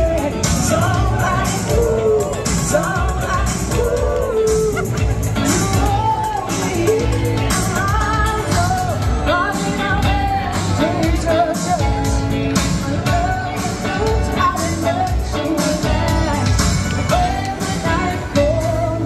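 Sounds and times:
pop-rock song with singer: 0.0s - 19.0s.

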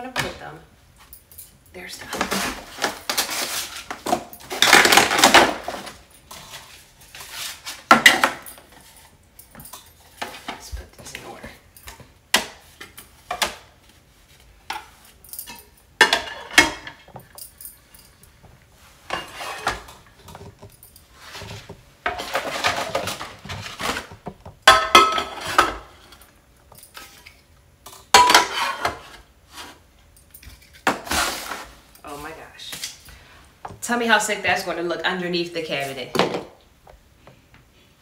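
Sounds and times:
pots and pans clanking: 15.4s - 17.1s, 19.1s - 26.2s, 27.9s - 29.2s.

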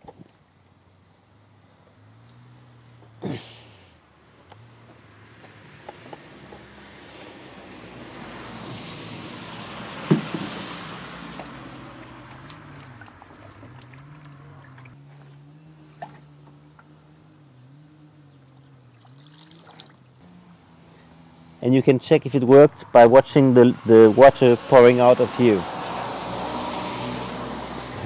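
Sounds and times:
water pouring from watering can: 19.0s - 20.2s.

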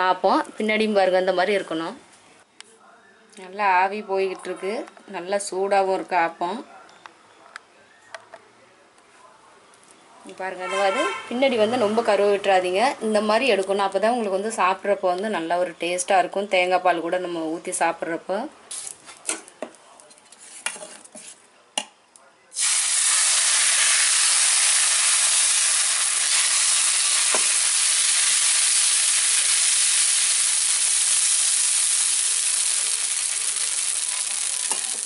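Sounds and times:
batter sizzling on iron pan: 22.6s - 35.0s.

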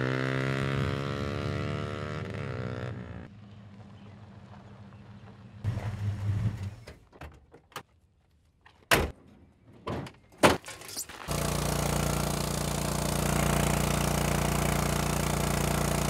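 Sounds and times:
clunks of dirt bike handling: 9.8s - 11.3s
water pump engine running: 11.3s - 16.0s.

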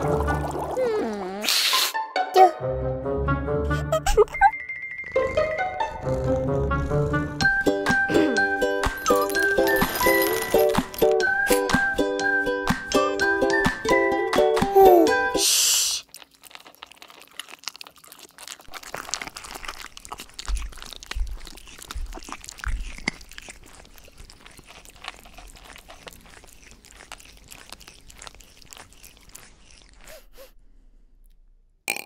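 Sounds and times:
kitten crunching dry kibble: 16.0s - 30.5s.

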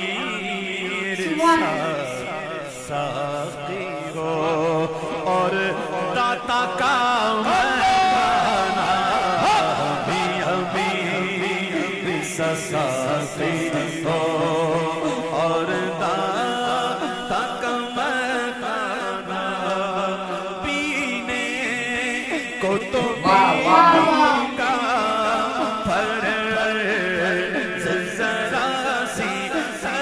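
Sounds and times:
man singing devotional song: 0.0s - 30.0s
backing voices: 1.1s - 2.2s, 23.2s - 24.9s.

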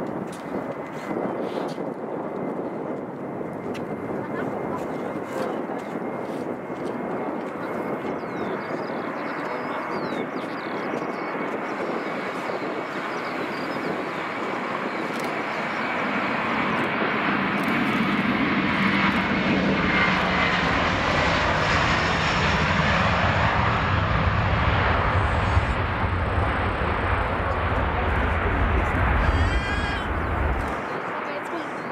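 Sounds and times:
jet engines at high thrust: 0.0s - 31.9s
deep rumble: 18.2s - 30.9s.

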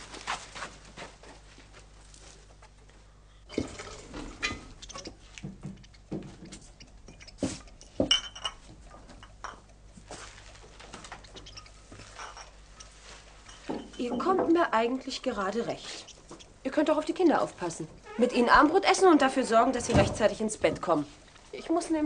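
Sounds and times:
glassware clinking: 8.0s - 8.6s, 12.1s - 12.6s.

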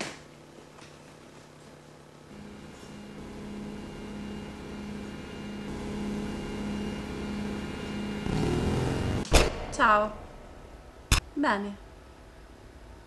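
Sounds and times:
steady low hum: 0.2s - 13.0s.

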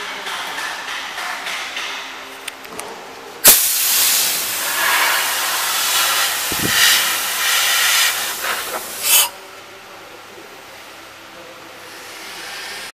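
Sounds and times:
compressed air hissing: 3.4s - 9.4s, 11.9s - 12.9s.

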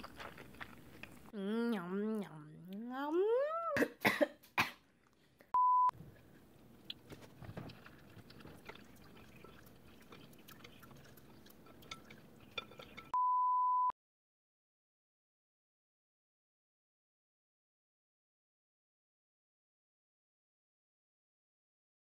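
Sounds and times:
person's voice rising: 1.4s - 3.9s
electronic censor beeps: 5.6s - 5.9s, 13.2s - 13.9s.

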